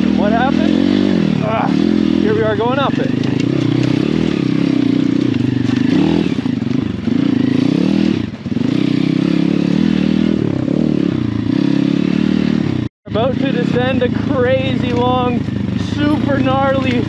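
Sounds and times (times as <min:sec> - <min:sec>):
small motorcycle engine revving uphill: 0:00.0 - 0:17.0
stones clattering under tyres: 0:03.1 - 0:07.0.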